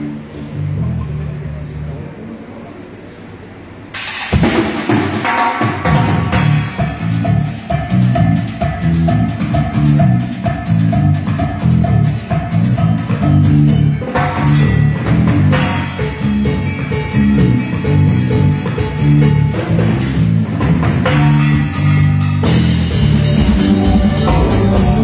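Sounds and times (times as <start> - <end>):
deep bass notes: 0.0 - 2.7, 6.2 - 25.0
drum kit: 3.9 - 25.0
electric guitar: 5.9 - 25.0.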